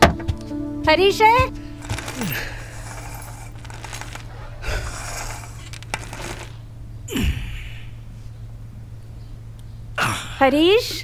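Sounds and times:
low steady hum: 0.4 - 11.0
man breathing hard: 1.6 - 6.5
hissing exhales: 2.2 - 8.0.

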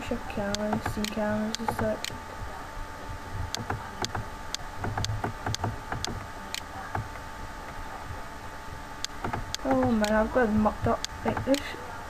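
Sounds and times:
steady hum: 0.0 - 12.0
computer mouse clicking: 0.5 - 2.2, 3.5 - 7.8, 9.0 - 10.2, 11.0 - 11.7.

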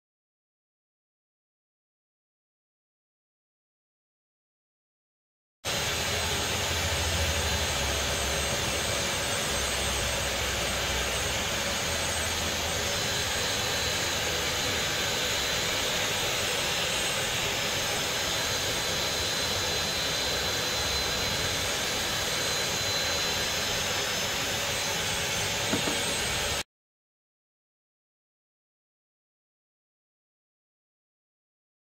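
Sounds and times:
vacuum cleaner running: 5.7 - 26.6.

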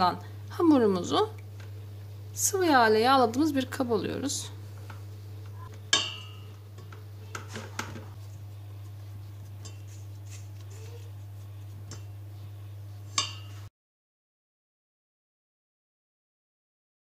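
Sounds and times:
steady low hum: 0.0 - 13.7
spatula scraping dough: 7.4 - 13.7.

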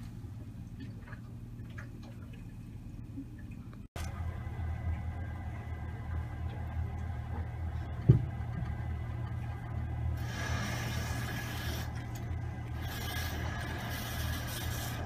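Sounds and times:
pump humming: 0.5 - 15.0
hiss: 10.2 - 11.9, 12.8 - 15.0.

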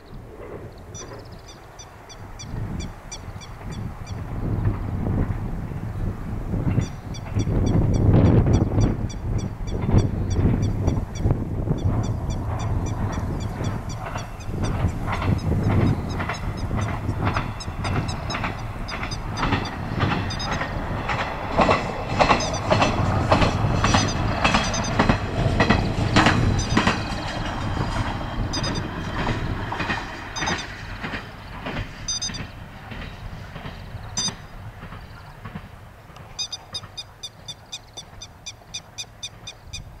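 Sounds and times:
low railcar engine rumble: 0.0 - 40.0
wheels clacking over rail joints: 0.0 - 40.0
high repeated chirps: 30.4 - 30.7, 32.1 - 32.5, 34.2 - 34.4.

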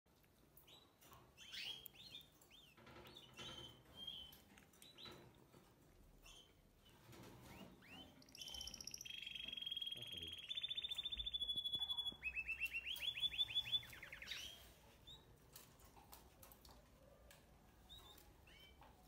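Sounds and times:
chicks chirping: 0.6 - 5.2, 6.2 - 15.7, 17.8 - 19.0.

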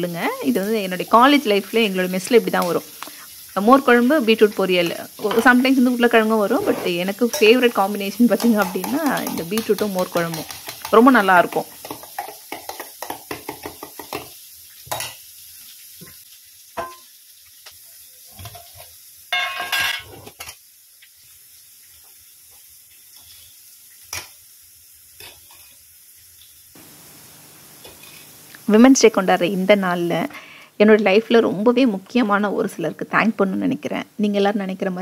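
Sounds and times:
onions sizzling: 0.0 - 35.0
steel vessels clinking: 19.3 - 20.2
metal spoon clinking in a bowl: 19.4 - 20.1.

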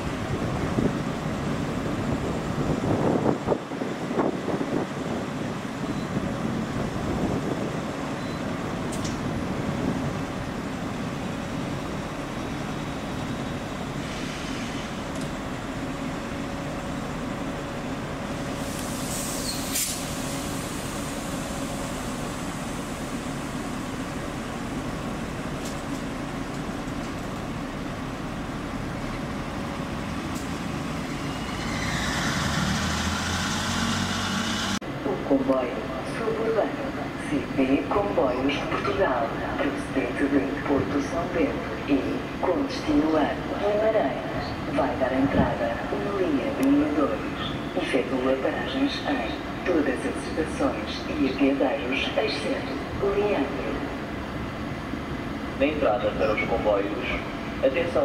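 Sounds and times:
electric locomotive hum: 0.0 - 58.0
high squeal: 31.1 - 34.8.

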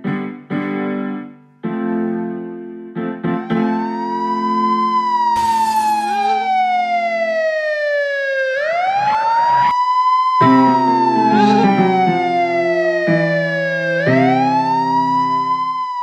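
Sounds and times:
siren wailing: 3.3 - 16.0
piano chord: 10.4 - 15.8.

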